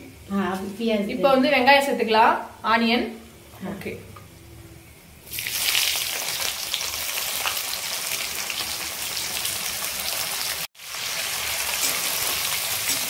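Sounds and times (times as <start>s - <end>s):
onions sizzling in hot oil: 5.2s - 13.0s.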